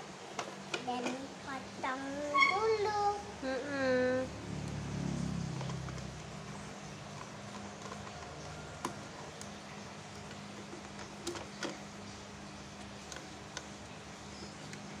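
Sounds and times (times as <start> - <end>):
plastic toy clicking and scraping: 5.4 - 12.0, 12.8 - 13.8.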